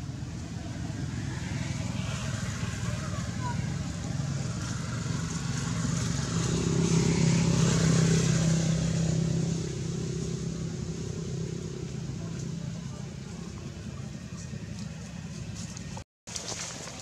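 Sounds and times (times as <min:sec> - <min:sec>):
vehicle engine driving past: 0:00.0 - 0:16.0.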